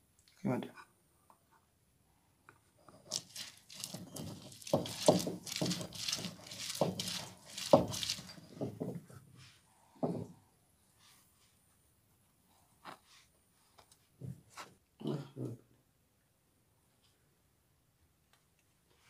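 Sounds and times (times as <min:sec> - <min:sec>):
stone crushing on grinding slab: 0:03.0 - 0:08.8.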